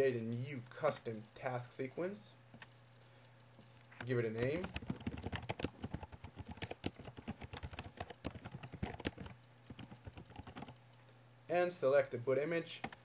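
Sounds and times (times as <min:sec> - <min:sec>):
computer keyboard typing: 0:04.0 - 0:10.8.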